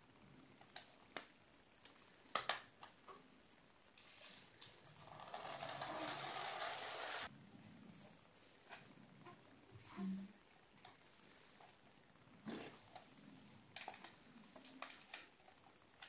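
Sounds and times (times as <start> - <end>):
toy whirring across tiles: 4.0 - 7.3.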